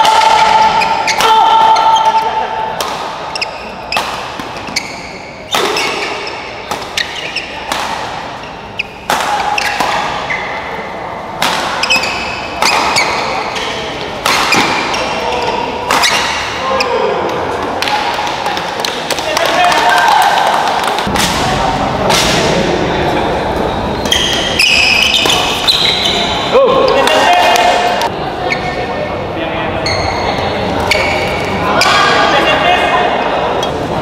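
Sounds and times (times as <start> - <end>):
rackets striking shuttlecock: 0.0 - 10.6, 11.4 - 16.5
spectators' voices and shouts: 12.4 - 34.0.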